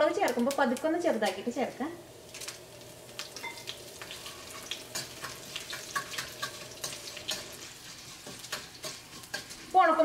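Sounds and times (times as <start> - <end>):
oil sizzling and crackling: 0.0 - 10.0
spatula scraping pan: 4.0 - 10.0.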